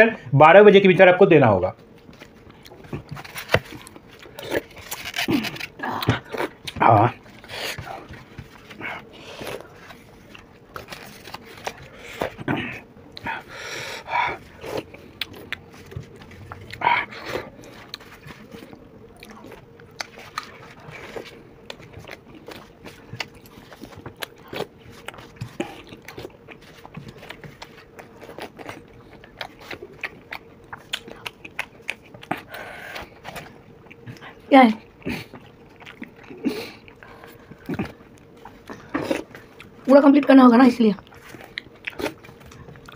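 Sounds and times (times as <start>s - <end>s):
faint steady hum: 0.0s - 42.9s
chewing mouth noises: 14.2s - 39.9s, 41.0s - 42.9s.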